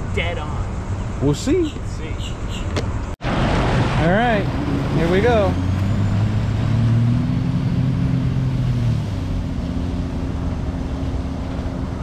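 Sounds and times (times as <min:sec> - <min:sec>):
watercraft engine running: 0:03.2 - 0:12.0.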